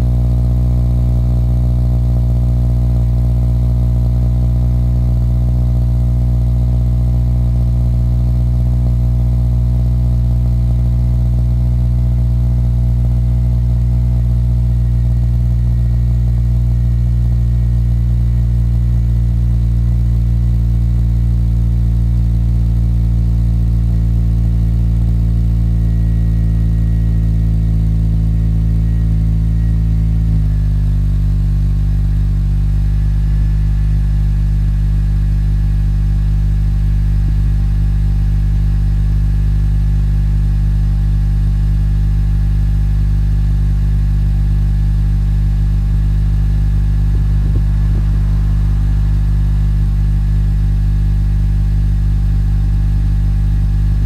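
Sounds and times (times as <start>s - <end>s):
car engine idling: 14.4s - 37.9s, 42.6s - 54.0s.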